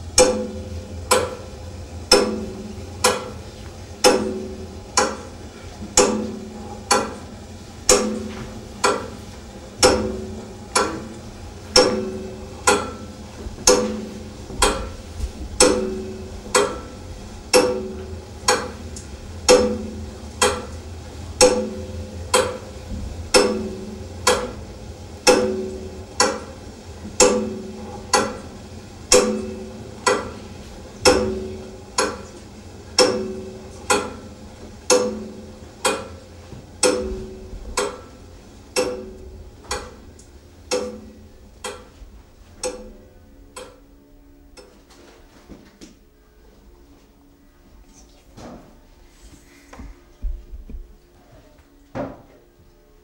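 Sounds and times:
clock ticking: 0:15.6 - 0:17.9, 0:38.8 - 0:42.0, 0:42.6 - 0:43.9.

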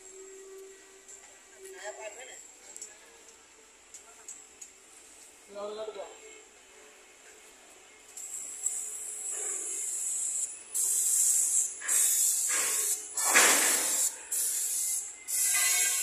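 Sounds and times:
paint sprayer hissing: 0:08.2 - 0:16.0.

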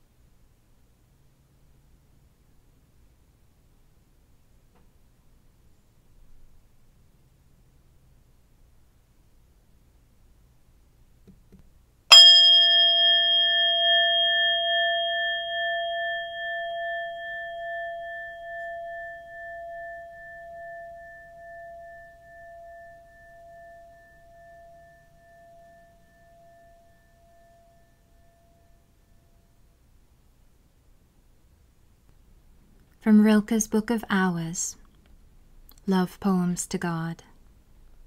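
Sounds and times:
singing bowl ringing: 0:12.1 - 0:29.7.

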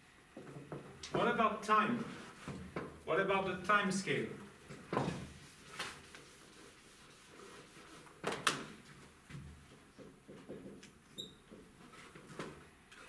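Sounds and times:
eraser wiping whiteboard: 0:04.8 - 0:08.2
marker squeak: 0:11.1 - 0:11.4.

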